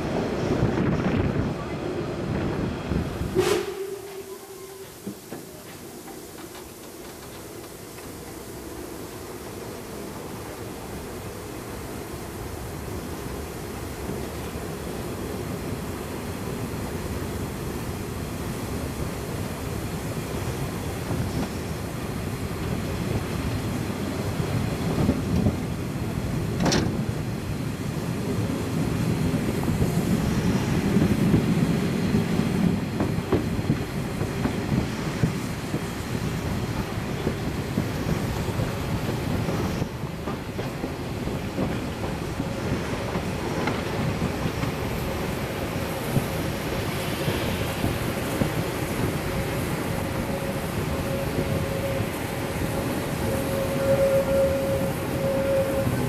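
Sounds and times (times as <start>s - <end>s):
train wheels clattering on rails: 2.4s - 8.9s, 18.7s - 56.0s.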